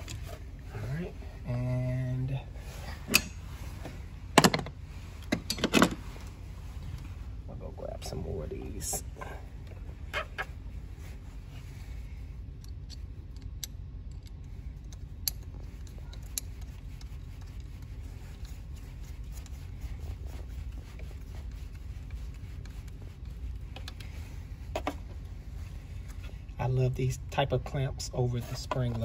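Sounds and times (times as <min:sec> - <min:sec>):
steady low hum: 0:00.0 - 0:29.0
metallic clicks and scraping: 0:02.9 - 0:03.5, 0:12.6 - 0:25.0.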